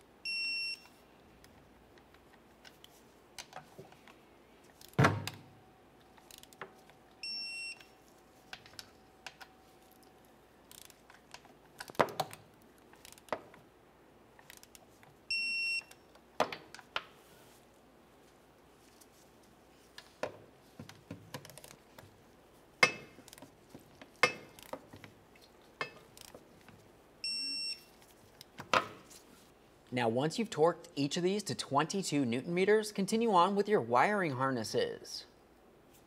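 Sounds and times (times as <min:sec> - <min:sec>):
short high beeps: 0:07.2 - 0:07.9, 0:27.2 - 0:27.9
wrench clicking on bolts: 0:10.7 - 0:11.2, 0:13.0 - 0:13.4, 0:14.4 - 0:14.8.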